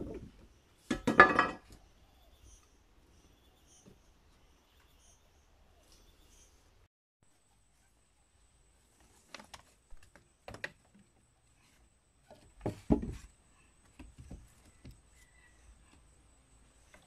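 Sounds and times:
wooden poles knocking: 0:00.9 - 0:01.7, 0:12.3 - 0:13.3
rope rustling: 0:08.7 - 0:11.8.

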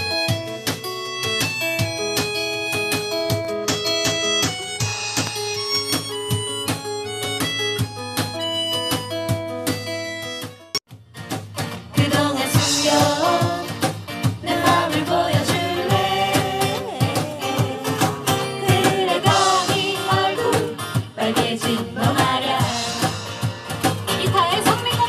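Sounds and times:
acoustic guitars strumming: 0:00.0 - 0:25.0
cajon beat: 0:00.0 - 0:25.0
woman and man singing: 0:12.0 - 0:23.3.

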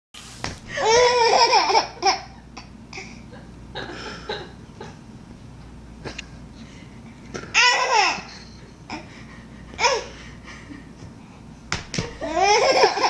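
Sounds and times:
baby laughing: 0:00.8 - 0:02.7, 0:07.5 - 0:09.1, 0:09.8 - 0:10.1, 0:12.2 - 0:13.0.

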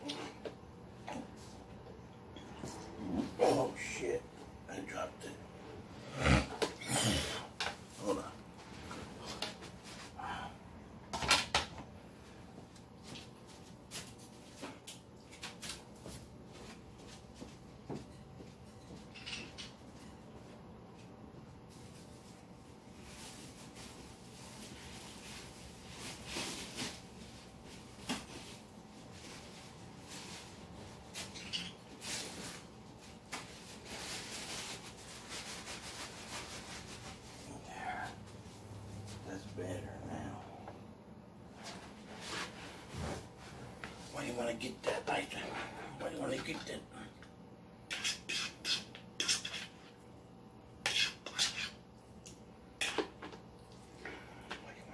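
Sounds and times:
scratchy rustling noise: 0:32.0 - 0:37.6.

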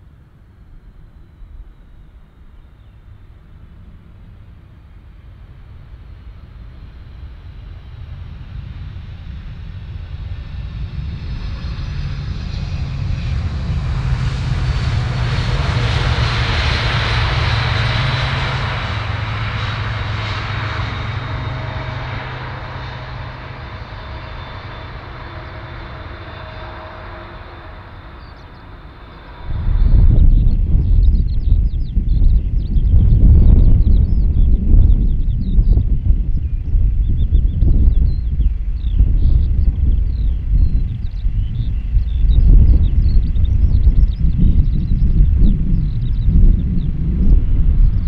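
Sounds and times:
jet engines rumbling with whine: 0:00.0 - 0:48.0
sudden loud low rumble: 0:08.5 - 0:48.0.

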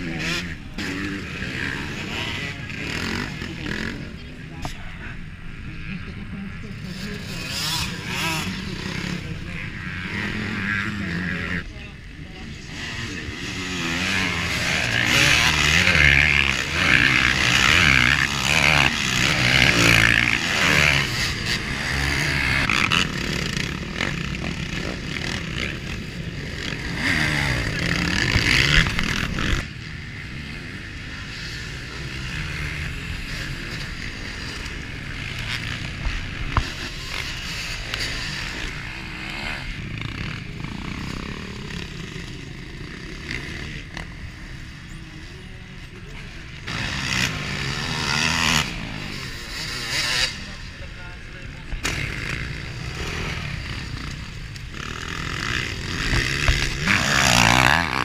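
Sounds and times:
motocross bikes racing past: 0:00.0 - 0:58.0.

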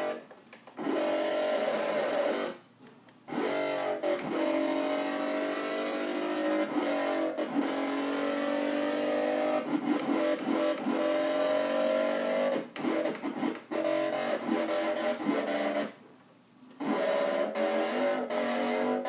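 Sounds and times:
distorted synthesizer bass: 0:03.3 - 0:16.0, 0:16.8 - 0:19.0.

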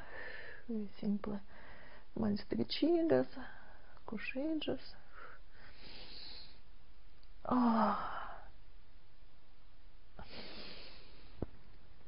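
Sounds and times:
soft breath: 0:00.0 - 0:00.7, 0:01.5 - 0:02.1, 0:05.0 - 0:06.7, 0:10.2 - 0:11.6
woman sighing: 0:07.4 - 0:08.5.

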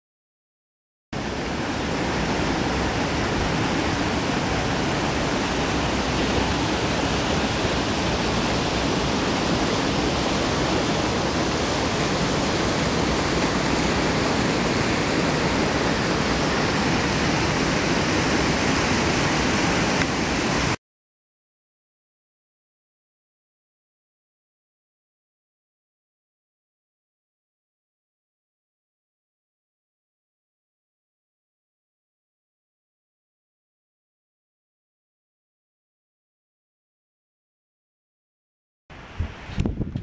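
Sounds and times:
creek rushing over rocks: 0:01.2 - 0:20.8.

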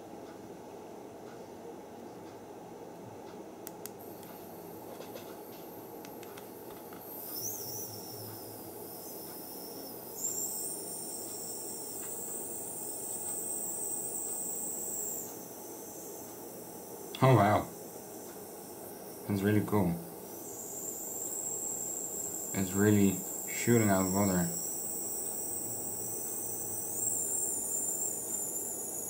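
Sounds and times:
high-pitched whine: 0:04.0 - 0:29.0
mist maker hiss: 0:04.0 - 0:29.0.

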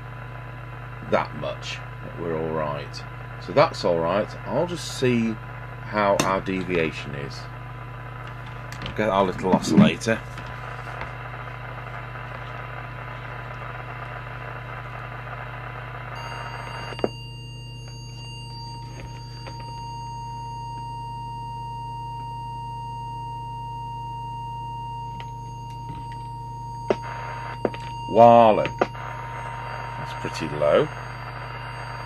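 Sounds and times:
low hum: 0:00.0 - 0:32.0
steady test tone: 0:08.7 - 0:10.6, 0:15.7 - 0:32.0.

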